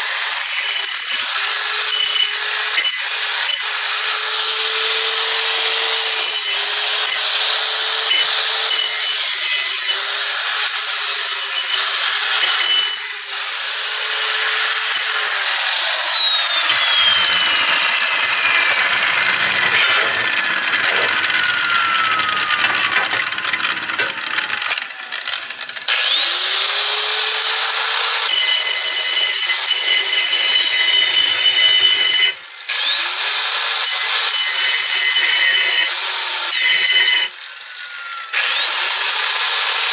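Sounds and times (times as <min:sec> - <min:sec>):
angle grinder grinding steel: 0:00.0 - 0:39.9.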